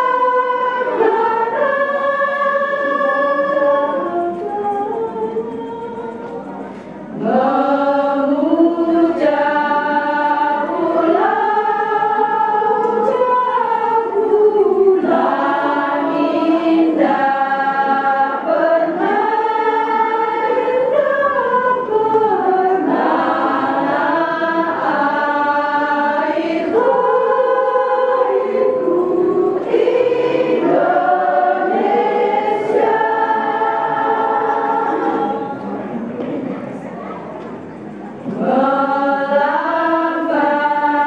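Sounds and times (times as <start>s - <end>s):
women's choir singing: 0.0s - 36.8s, 38.1s - 41.0s.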